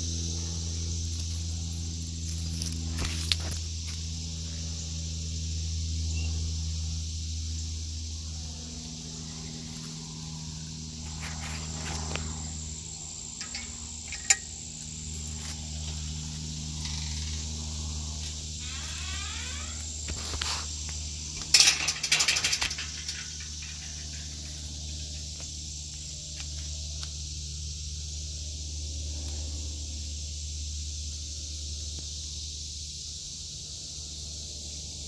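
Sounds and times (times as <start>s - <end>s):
low hum: 0.0s - 31.9s
cicadas buzzing: 0.0s - 35.0s
rapid rattle of clicks: 21.4s - 25.4s.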